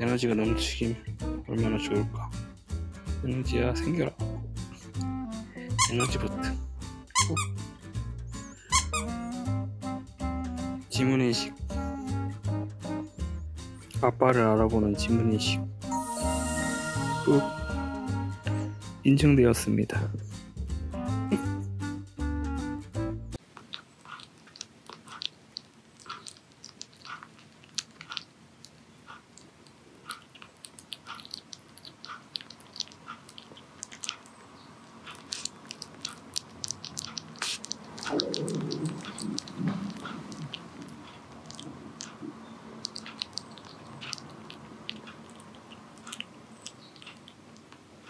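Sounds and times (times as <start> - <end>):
louder lower sound: 15.9 - 19.0
kitten chewing wet food: 23.4 - 48.0.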